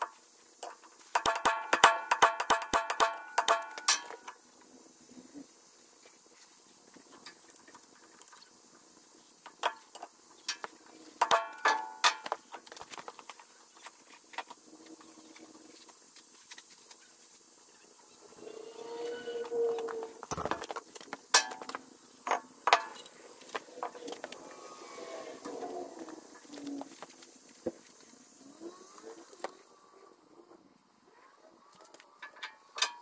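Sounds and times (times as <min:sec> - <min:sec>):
hammer striking metal: 0:01.2 - 0:04.3.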